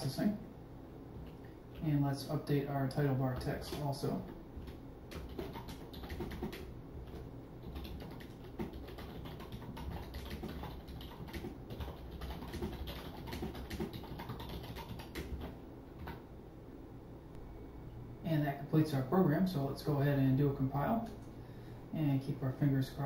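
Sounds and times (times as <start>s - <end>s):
computer keyboard typing: 3.0s - 16.2s.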